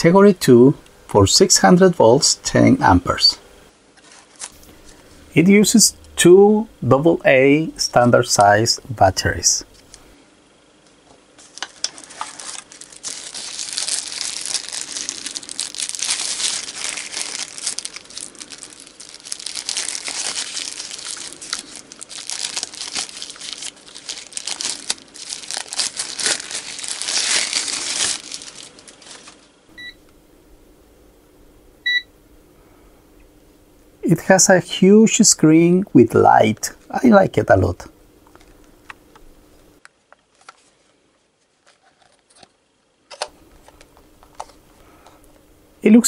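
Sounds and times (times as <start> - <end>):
plastic wrapping crinkling: 4.0 - 5.0, 11.4 - 29.6, 40.0 - 44.6.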